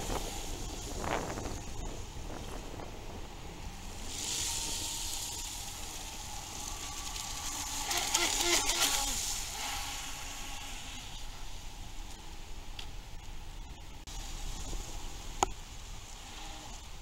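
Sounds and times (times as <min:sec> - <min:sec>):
faint high whine: 0:00.0 - 0:17.0
model jet ski jet wash hiss: 0:03.8 - 0:11.6.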